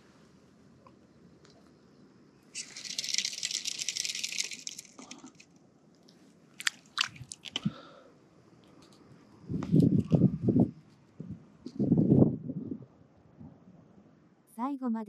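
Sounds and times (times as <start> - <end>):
fly reel ratchet buzzing: 2.5 - 5.4.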